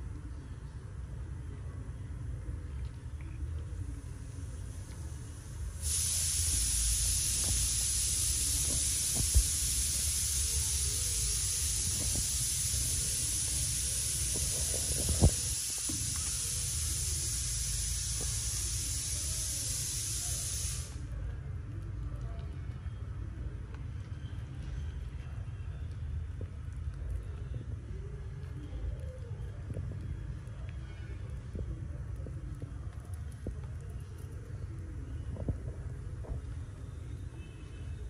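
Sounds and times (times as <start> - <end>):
high-pitched hiss: 4.3 - 21.1.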